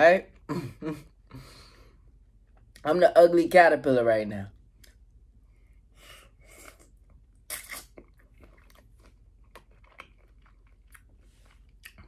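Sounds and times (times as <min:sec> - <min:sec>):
person chewing wetly: 0:06.7 - 0:12.0.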